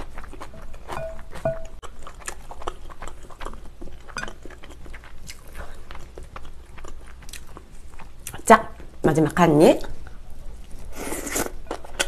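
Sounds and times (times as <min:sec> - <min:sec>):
wet chewing and crunching: 0:00.0 - 0:09.0.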